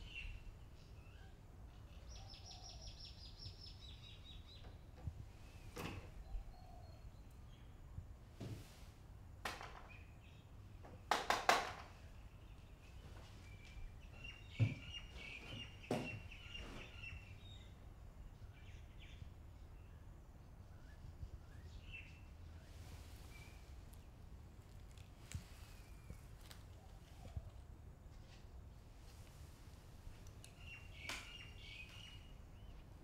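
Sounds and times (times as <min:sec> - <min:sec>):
faint bird chirps: 0:00.0 - 0:04.8, 0:05.4 - 0:07.8, 0:12.2 - 0:24.0.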